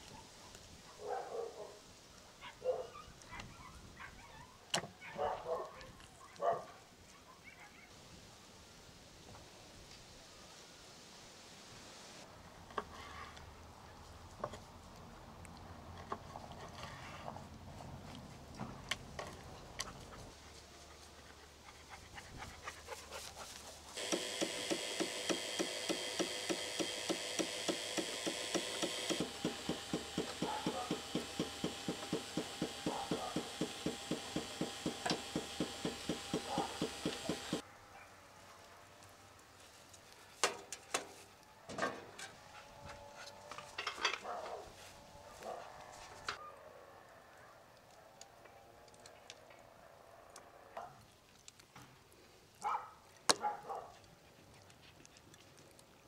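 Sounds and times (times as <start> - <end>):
hiss: 24.0 - 37.6
rotisserie spit mechanism clicking: 24.0 - 37.6.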